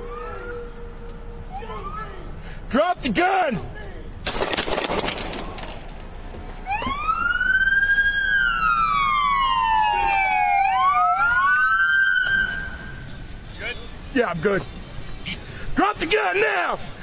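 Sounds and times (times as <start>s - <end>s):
police sirens wailing: 0.0s - 3.8s, 6.5s - 17.0s
sharp gunshots: 4.2s - 5.7s.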